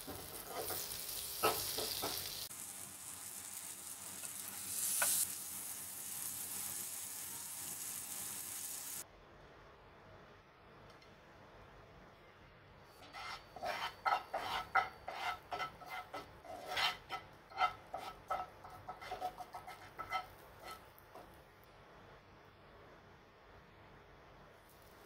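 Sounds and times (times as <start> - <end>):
spatula scraping frying pan: 0.0 - 2.5, 4.2 - 5.3, 13.0 - 21.3.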